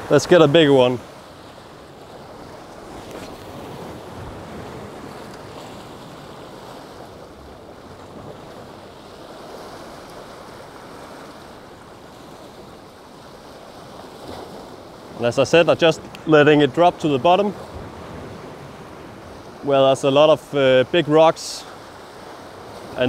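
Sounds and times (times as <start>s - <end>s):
sea waves breaking against rocks: 0.0s - 23.0s
wind buffeting microphone: 17.4s - 19.6s.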